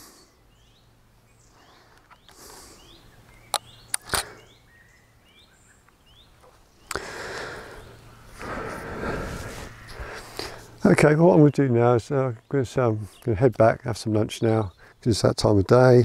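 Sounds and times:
short bird calls: 0.0 - 10.8
camera clicks: 3.5 - 4.4.

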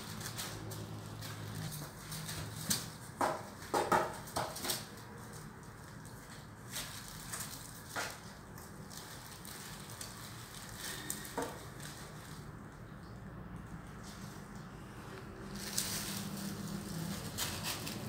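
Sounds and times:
plastic bag crinkling: 0.0 - 3.1, 4.3 - 13.0, 15.4 - 18.0
low background noise: 0.0 - 18.0.

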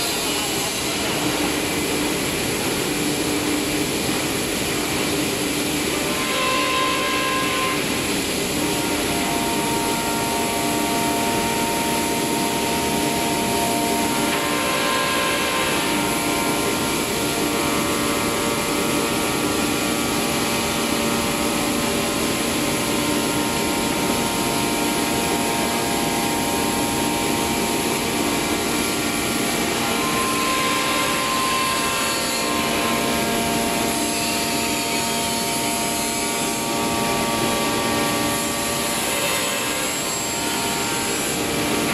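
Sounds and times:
router spindle whine: 6.0 - 41.9
wood cutting noise: 20.7 - 41.9.

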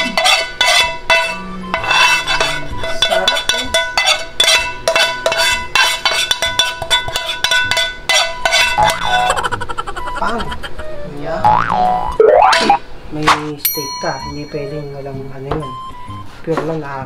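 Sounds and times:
bell-like percussion music: 13.6 - 16.1.

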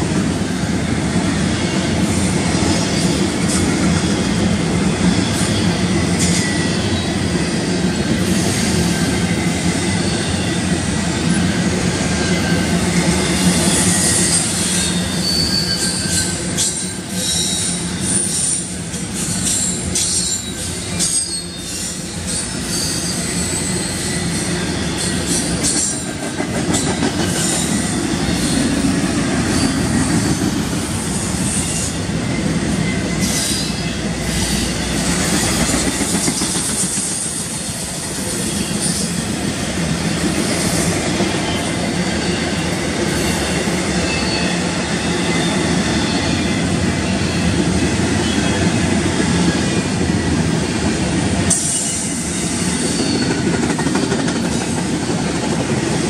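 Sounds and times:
steel wheels rumbling on rail: 0.0 - 56.0
high wheel squeals: 12.0 - 26.2, 26.8 - 37.6.

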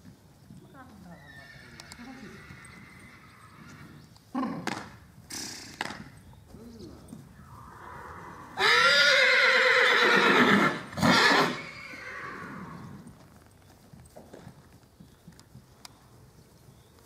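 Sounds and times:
horse whinnying: 1.2 - 4.7, 7.4 - 13.0.

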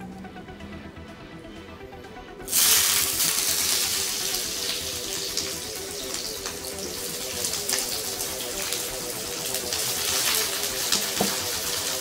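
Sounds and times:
water running into a sink: 2.5 - 12.0
kitchen tap turned on: 10.9 - 11.5.

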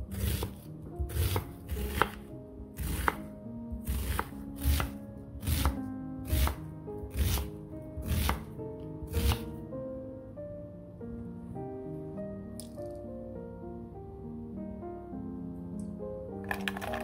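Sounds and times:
background music: 0.0 - 17.0
knife chopping on wooden board: 0.1 - 8.5, 9.1 - 9.5.

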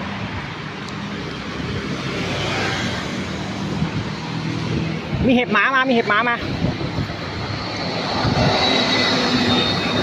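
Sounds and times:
road traffic: 0.0 - 10.0.

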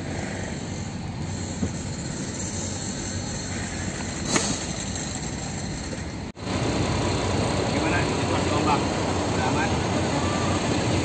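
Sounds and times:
diesel truck engine from inside cab: 6.3 - 11.0.

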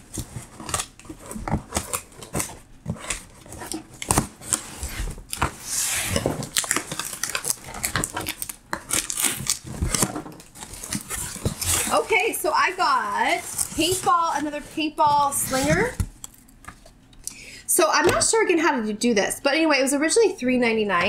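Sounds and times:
rustling: 0.1 - 16.1.

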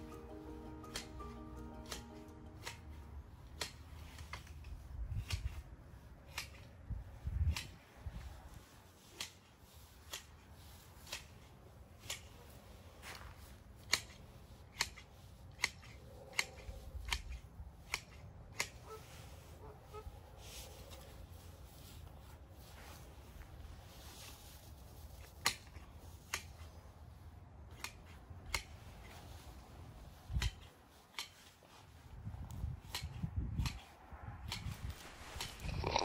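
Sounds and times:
hand shears snipping: 0.0 - 19.0, 25.0 - 26.8, 27.6 - 29.4, 30.3 - 35.7.

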